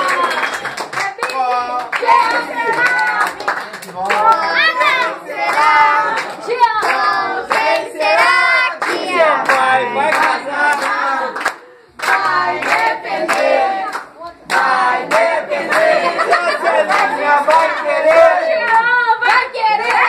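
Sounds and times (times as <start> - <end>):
hands clapping in time: 0.0 - 4.4
group singing birthday song: 1.5 - 20.0.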